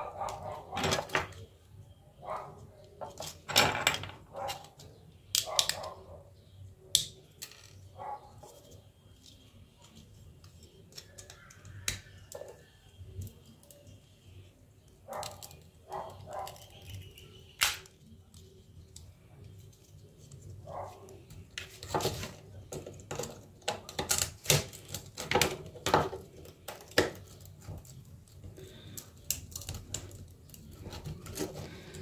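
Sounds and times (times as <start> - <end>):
plastic clicks and snaps: 6.9 - 7.8.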